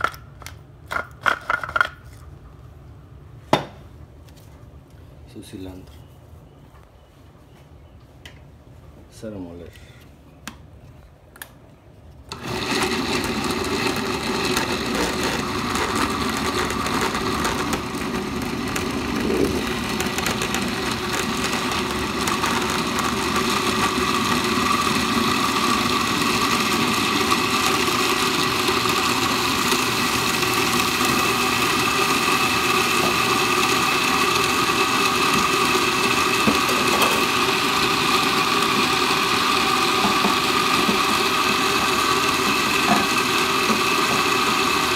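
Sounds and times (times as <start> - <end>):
blender running at high speed: 12.3 - 44.9.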